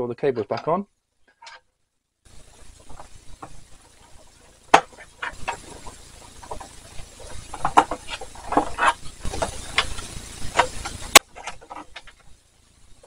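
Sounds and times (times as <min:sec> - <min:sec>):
cables rustling and scraping: 0:02.3 - 0:12.5.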